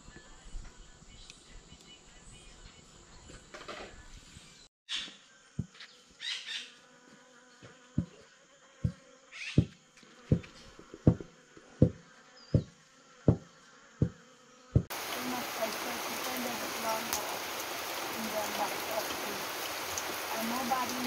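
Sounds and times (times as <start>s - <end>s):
rhythmic wooden knocking: 10.3s - 12.0s.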